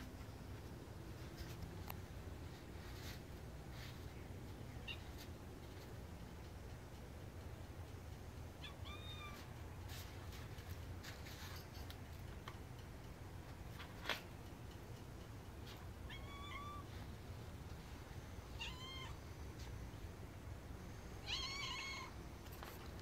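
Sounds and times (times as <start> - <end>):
steady low hum: 0.0 - 23.0
cat mewing: 16.1 - 16.9, 18.6 - 19.2, 21.2 - 22.1.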